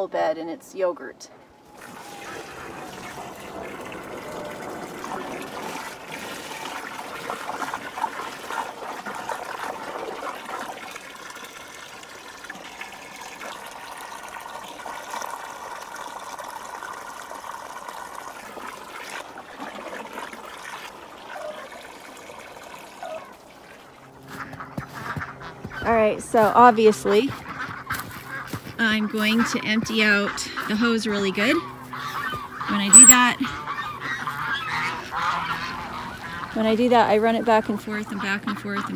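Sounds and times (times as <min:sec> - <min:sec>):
hose water filling plastic tub: 0:01.7 - 0:24.0.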